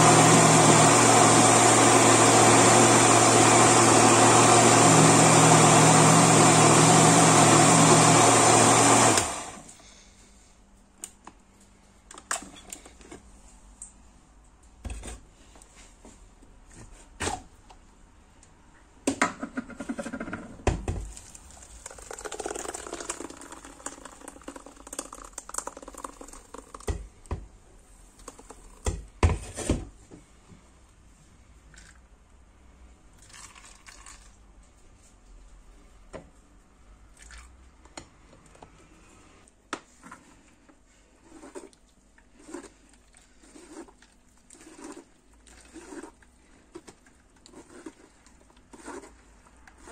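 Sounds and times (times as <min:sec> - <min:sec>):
blender running: 0:00.0 - 0:09.7, 0:21.6 - 0:26.8
juice pouring through a sieve: 0:21.1 - 0:26.9, 0:33.2 - 0:34.4, 0:41.0 - 0:49.9.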